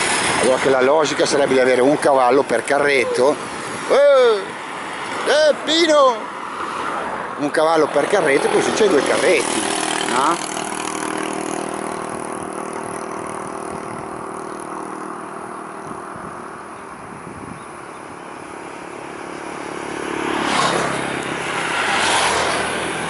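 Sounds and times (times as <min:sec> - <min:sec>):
vehicles passing close by: 0:00.0 - 0:23.0
vehicle engine running: 0:08.1 - 0:23.0.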